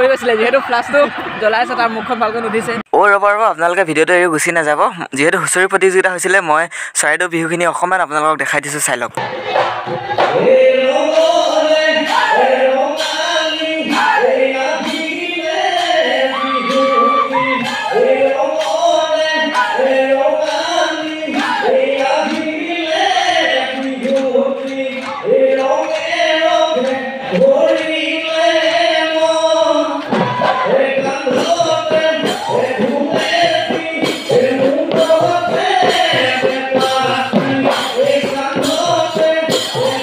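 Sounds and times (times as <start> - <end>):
rhythmic clapping and percussion: 9.2 - 40.0
men chanting in chorus: 10.0 - 40.0.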